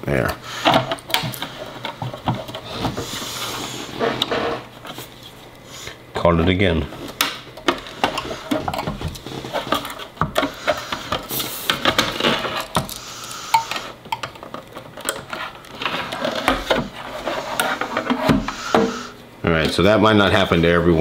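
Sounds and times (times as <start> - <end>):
plastic case clicking and scraping: 7.0 - 13.1, 13.7 - 18.9.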